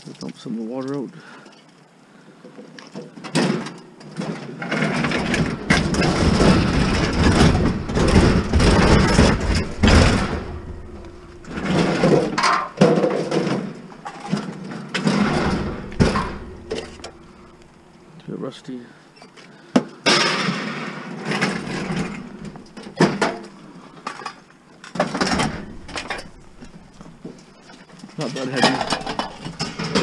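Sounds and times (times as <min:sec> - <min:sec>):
sheet metal scraping and bumping: 0:03.4 - 0:17.9, 0:20.1 - 0:24.2, 0:25.0 - 0:27.8, 0:28.5 - 0:30.0
sharp knocks: 0:05.0 - 0:14.4, 0:15.0 - 0:17.7.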